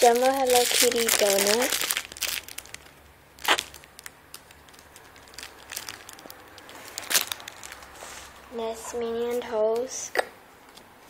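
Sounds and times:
sharp plastic crackles: 0.0s - 8.0s
plastic packaging crinkling: 0.0s - 8.2s.

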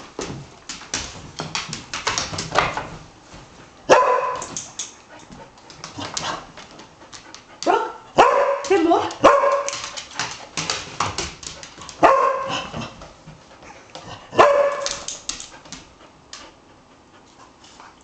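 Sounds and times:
dog barking: 3.9s - 4.5s, 7.6s - 9.8s, 12.0s - 12.7s, 14.3s - 15.0s.

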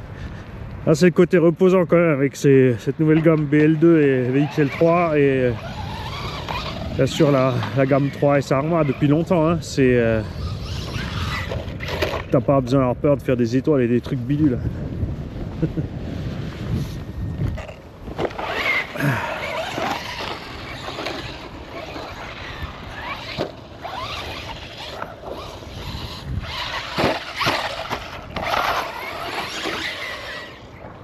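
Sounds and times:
electric motor whine: 4.2s - 12.3s, 17.4s - 31.0s.

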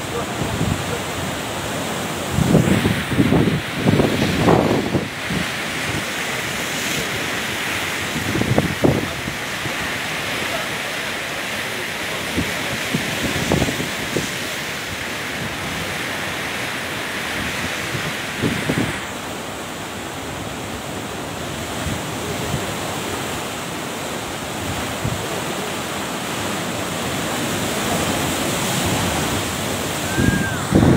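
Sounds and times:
wind rushing across microphone: 0.0s - 10.4s, 12.1s - 19.2s, 24.5s - 25.7s, 27.0s - 30.9s.

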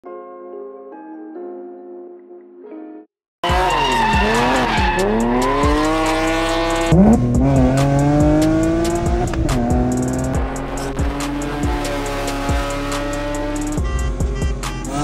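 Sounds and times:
car engine revving through gears: 3.4s - 15.0s.

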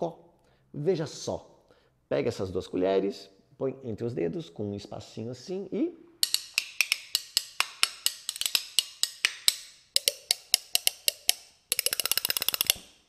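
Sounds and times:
metal spoons clicking rhythm: 6.2s - 12.8s.

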